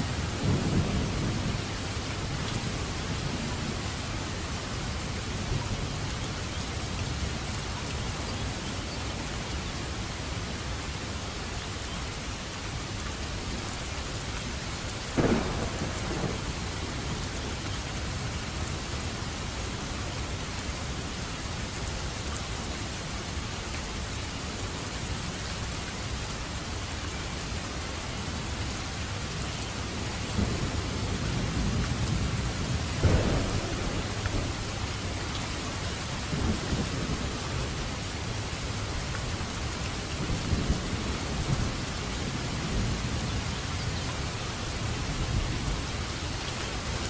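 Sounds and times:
steady rain falling: 0.0s - 47.0s.

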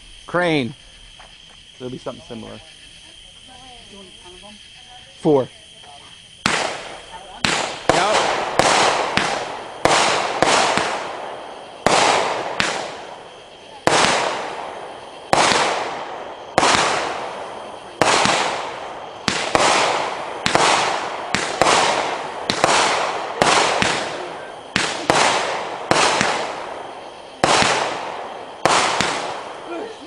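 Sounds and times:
firework shots banging: 6.4s - 30.0s.

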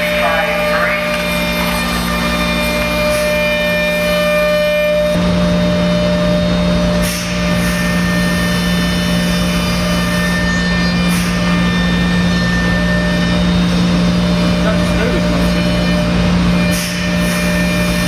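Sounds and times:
router spindle hum and whine: 0.0s - 18.0s.

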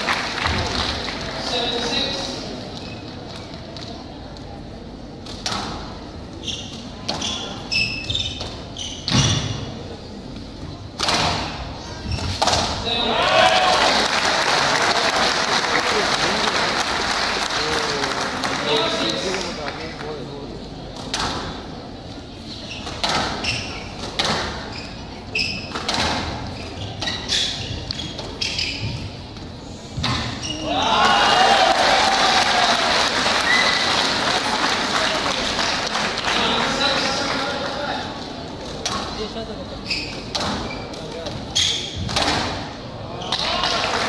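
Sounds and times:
rackets hitting squash ball: 5.2s - 9.8s, 10.9s - 12.9s, 20.9s - 21.7s, 22.8s - 29.2s, 29.9s - 30.6s, 38.6s - 39.2s, 40.0s - 43.7s
shoes squeaking on wooden floor: 6.3s - 9.6s, 22.4s - 29.4s, 39.8s - 42.0s
ball hitting court walls: 11.0s - 12.8s, 22.8s - 24.6s, 25.7s - 26.4s, 30.0s - 30.6s, 40.2s - 42.7s.

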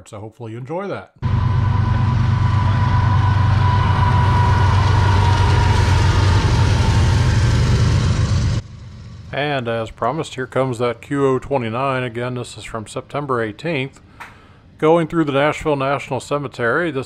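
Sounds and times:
thin high whine: 1.2s - 10.9s
cars rolling on rails: 1.2s - 11.0s
freight train passing: 1.2s - 12.7s.

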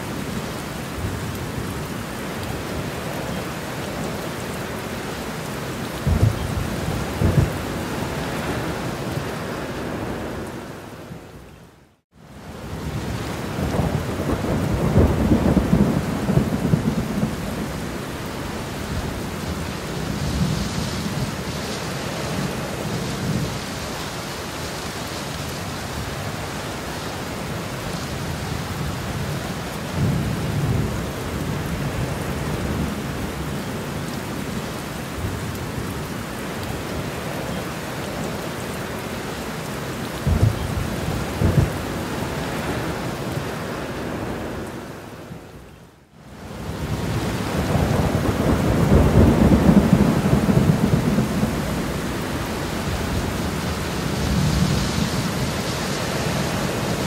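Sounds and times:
steady rain falling: 0.0s - 57.0s
rolling thunder: 13.6s - 17.8s, 40.2s - 42.0s, 46.7s - 55.6s.

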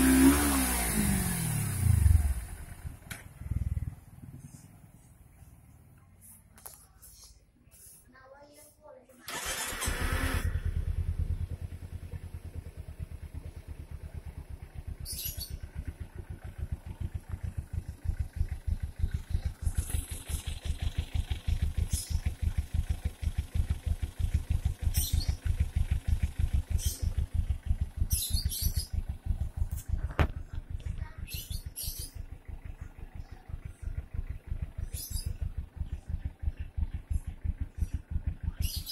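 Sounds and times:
motorcycle engine idling: 0.0s - 7.3s, 9.3s - 38.9s
electric starter cranking: 9.3s - 10.7s.

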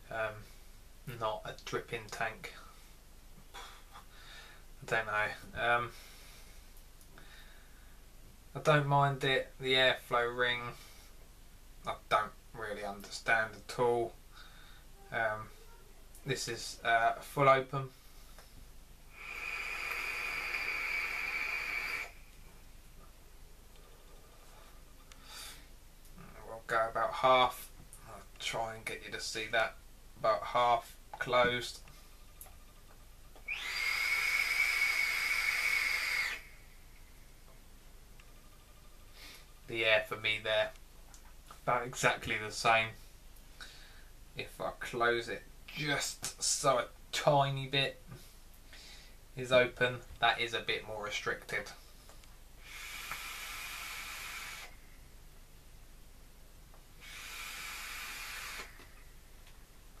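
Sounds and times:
whistling hiss of air inhaled: 19.2s - 22.2s, 33.5s - 37.1s, 52.6s - 55.0s, 57.0s - 59.0s.

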